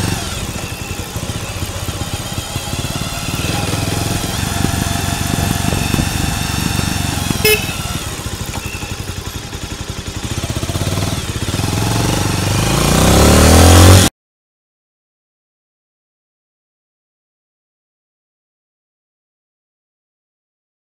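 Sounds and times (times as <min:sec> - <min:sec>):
motorcycle engine revving: 0:00.0 - 0:14.1
short high beep: 0:07.4 - 0:09.0.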